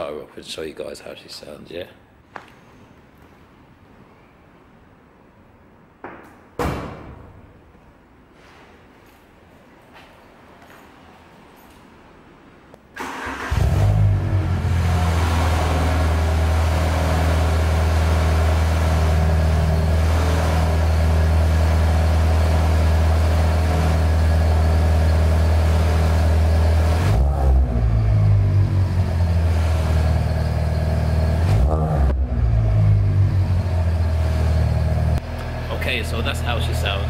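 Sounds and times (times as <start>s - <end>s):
car engine running and revving: 13.5s - 37.0s.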